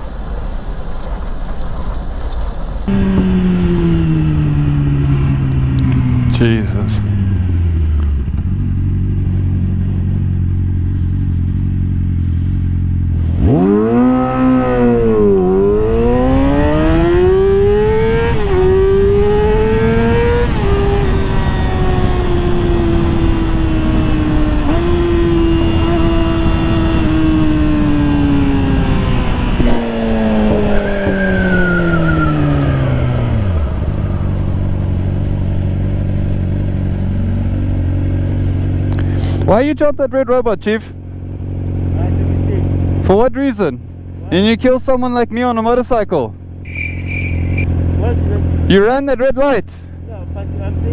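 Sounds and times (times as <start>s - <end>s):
motorcycle engine accelerating: 0.0s - 50.9s
wind rushing over microphone: 13.3s - 38.3s.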